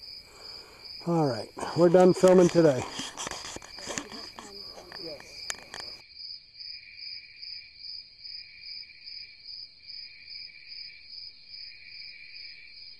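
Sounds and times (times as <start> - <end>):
insects chirping in pulses: 0.0 - 6.1
low insect trill: 0.0 - 12.9.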